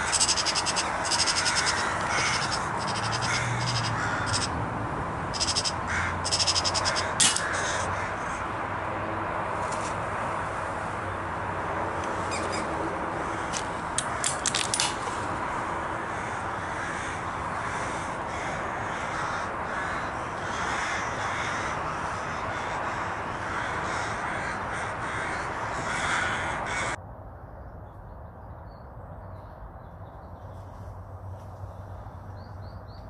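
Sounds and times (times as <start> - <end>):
crows cawing: 0.0 - 4.6, 5.3 - 8.8, 12.1 - 27.0.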